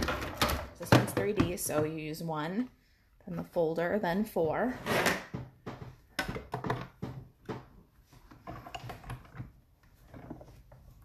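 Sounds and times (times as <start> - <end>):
plastic plates clacking: 4.9 - 11.0.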